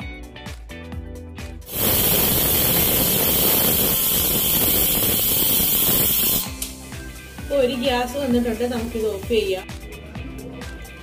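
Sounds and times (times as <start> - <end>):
background music: 0.0 - 3.2, 5.8 - 11.0
pressure cooker whistle hissing steam: 1.7 - 6.5.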